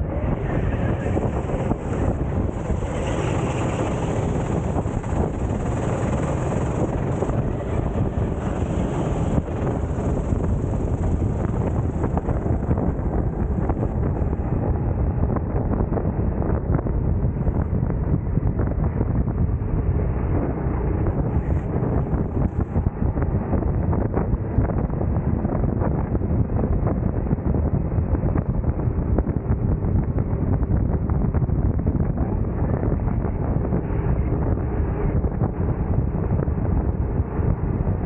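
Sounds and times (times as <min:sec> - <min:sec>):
road noise: 0:00.0 - 0:17.7, 0:19.6 - 0:25.3
wind buffeting microphone: 0:00.0 - 0:38.0.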